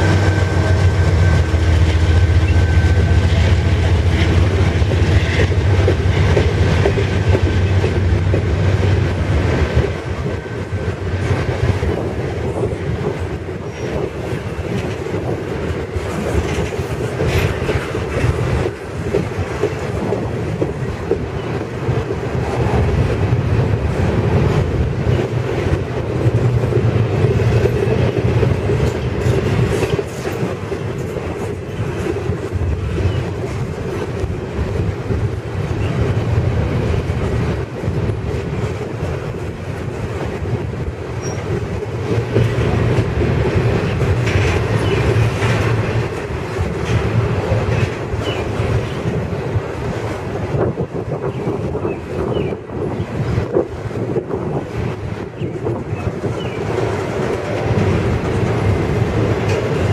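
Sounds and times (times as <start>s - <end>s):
wheels clicking over rail joints: 0.0s - 52.5s, 53.1s - 59.9s
freight train wheels rumbling: 0.0s - 59.9s.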